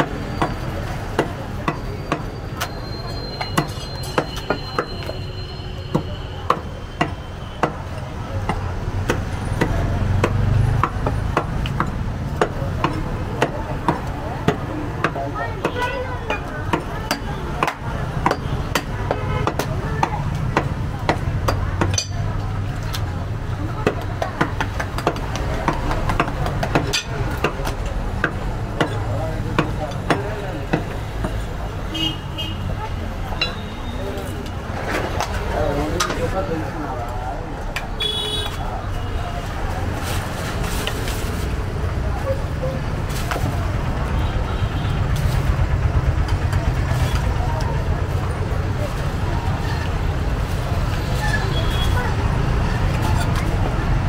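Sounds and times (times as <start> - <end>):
cleaver chopping on wooden block: 5.9 - 22.3, 23.8 - 31.4.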